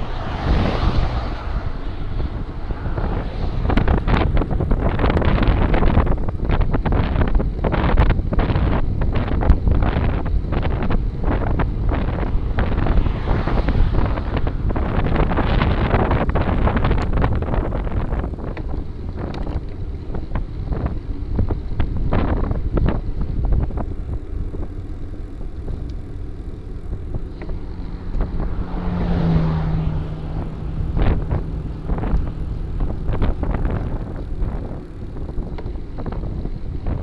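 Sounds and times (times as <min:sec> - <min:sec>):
steady low hum: 0:00.0 - 0:37.0
wind buffeting microphone: 0:00.0 - 0:37.0.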